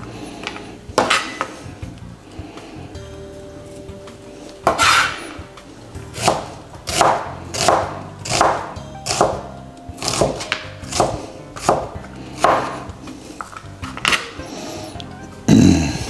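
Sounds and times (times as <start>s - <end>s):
knife slicing onion: 4.6s - 5.3s, 6.2s - 9.4s, 10.0s - 14.4s.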